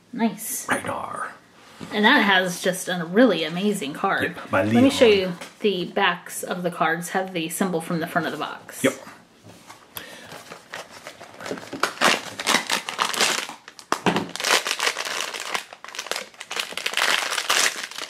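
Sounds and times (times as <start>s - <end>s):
foil bag crinkling: 10.1s - 18.0s.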